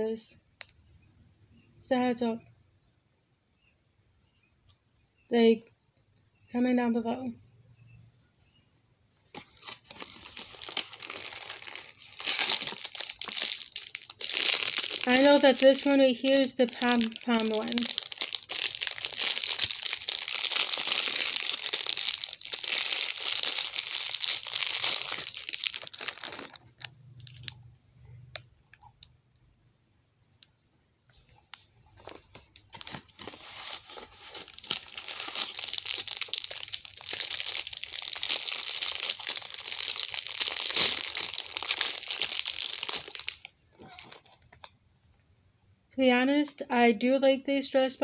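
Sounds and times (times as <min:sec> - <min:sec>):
plastic wrapper crinkling and tearing: 0:09.3 - 0:27.6, 0:31.2 - 0:44.8.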